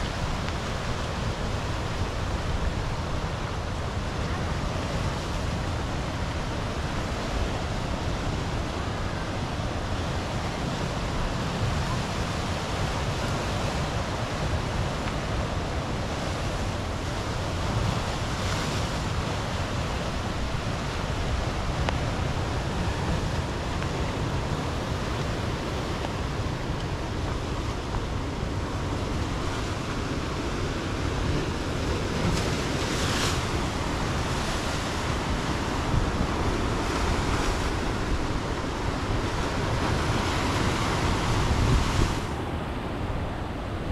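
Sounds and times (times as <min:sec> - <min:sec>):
surf breaking over rocks: 0:00.0 - 0:43.9
wind rumble on microphone: 0:00.0 - 0:43.9.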